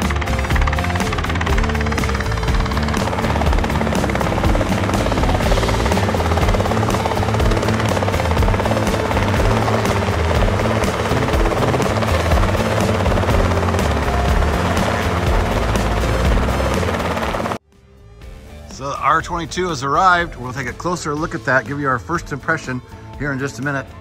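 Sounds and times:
helicopter rotor and engine: 0.0s - 17.6s.

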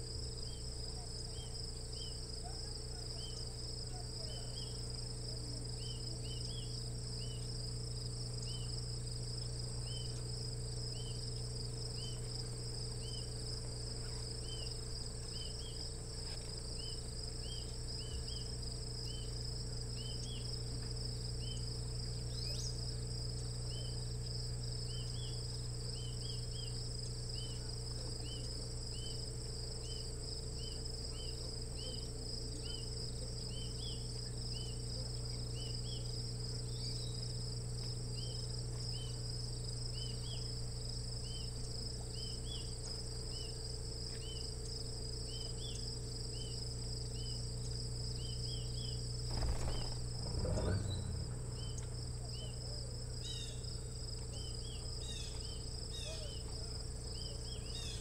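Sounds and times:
insects trilling and chirping: 0.0s - 58.0s
low hum: 48.8s - 55.6s.

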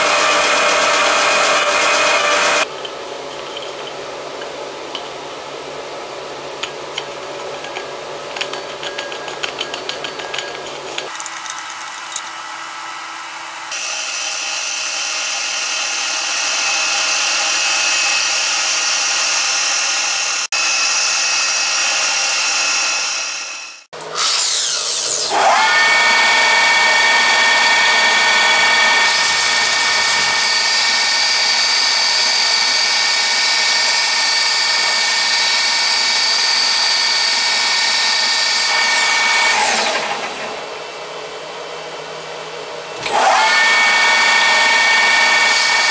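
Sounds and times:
polishing machine whining: 13.7s - 40.8s, 43.0s - 45.9s.

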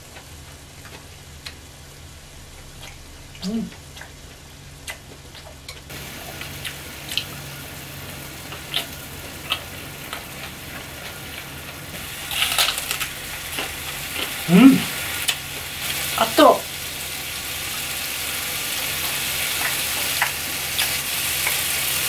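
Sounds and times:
beef sizzling on a griddle pan: 5.9s - 22.0s
fat popping and crackling: 8.4s - 16.0s
short voice sound: 14.5s - 15.0s.

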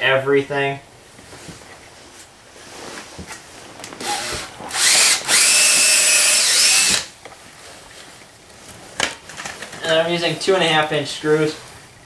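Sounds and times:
cordless drill boring into wood: 4.0s - 7.1s.

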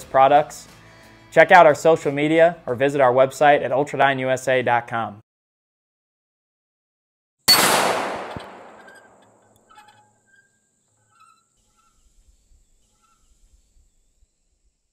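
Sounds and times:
rifle shot with echo: 7.5s - 9.4s.

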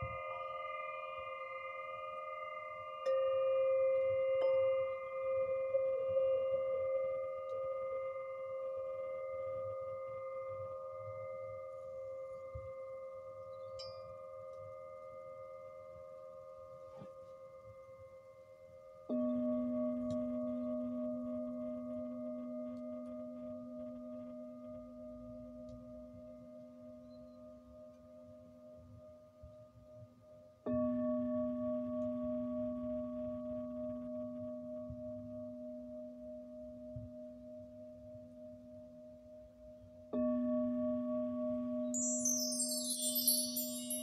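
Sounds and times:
singing bowl ringing: 0.0s - 16.6s, 40.1s - 44.0s.

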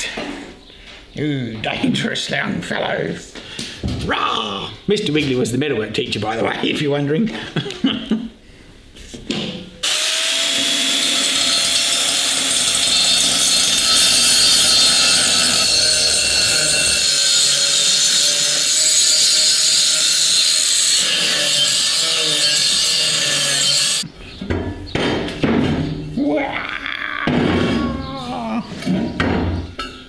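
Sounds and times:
angle grinder grinding metal: 9.8s - 24.1s.

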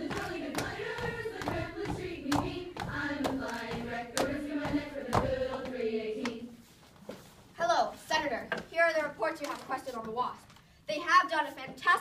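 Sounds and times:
stamping steps: 0.0s - 5.8s
girls singing together: 0.0s - 6.7s.

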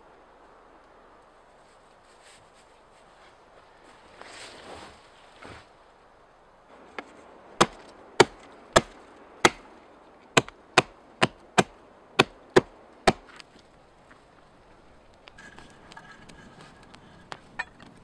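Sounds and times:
axe chopping wood: 7.0s - 9.6s, 10.4s - 13.4s.

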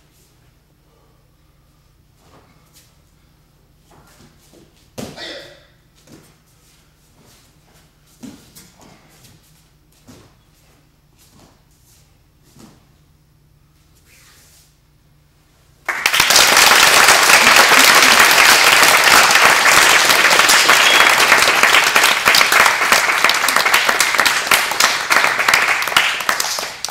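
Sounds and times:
audience applauding: 15.9s - 26.9s.

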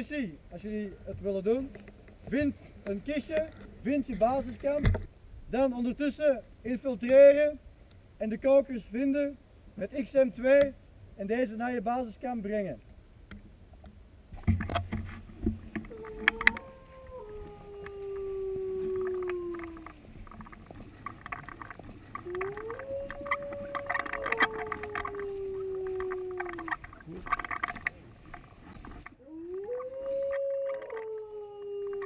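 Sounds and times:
clicks and rustling: 13.3s - 32.0s
wolf-like howling: 15.8s - 20.6s, 22.1s - 27.6s, 29.2s - 32.0s
fainter higher howl: 15.9s - 20.0s, 22.2s - 27.0s, 29.2s - 32.0s.

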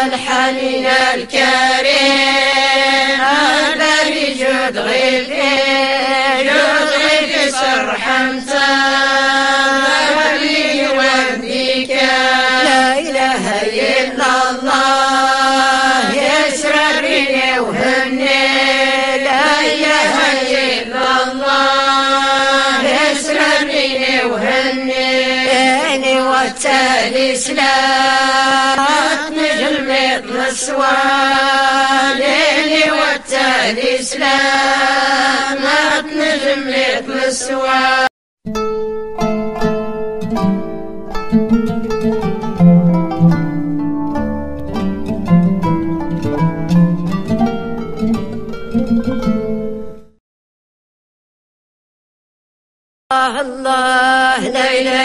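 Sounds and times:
women's choir chanting in unison: 0.0s - 38.1s, 53.2s - 55.0s.

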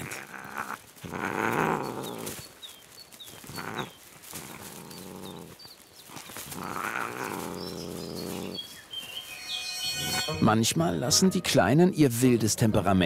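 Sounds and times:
wildcats growling: 0.0s - 2.6s, 3.3s - 8.8s
small bird chirping: 0.0s - 10.4s.

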